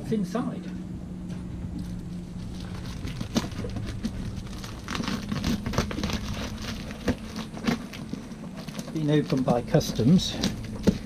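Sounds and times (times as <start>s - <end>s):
steady low hum: 0.0s - 11.0s
plastic wrap crinkling: 1.8s - 11.0s
knife cutting packing tape: 2.6s - 11.0s.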